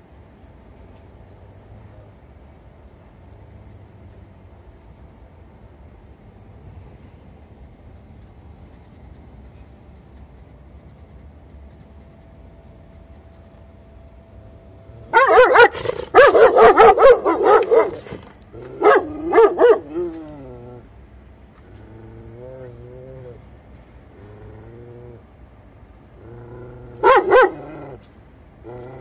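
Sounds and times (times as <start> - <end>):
dog barking: 15.1 - 20.2, 27.0 - 27.8
dog whining: 15.1 - 20.9, 26.3 - 28.0.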